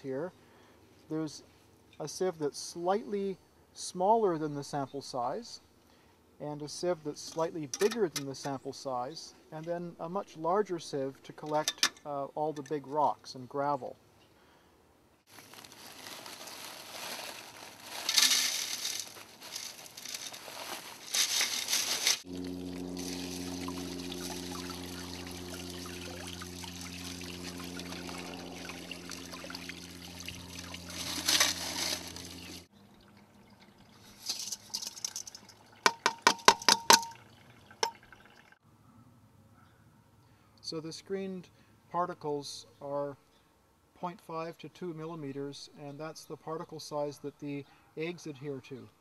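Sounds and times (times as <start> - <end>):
water pouring onto gravel: 15.3 - 32.6, 33.4 - 35.9
steady low hum: 21.2 - 32.7.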